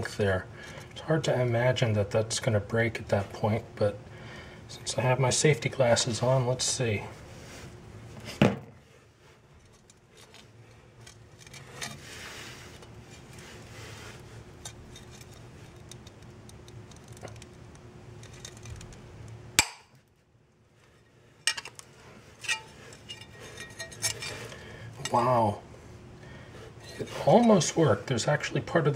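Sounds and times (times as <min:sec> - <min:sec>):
glass snapping: 0:19.6 - 0:19.9.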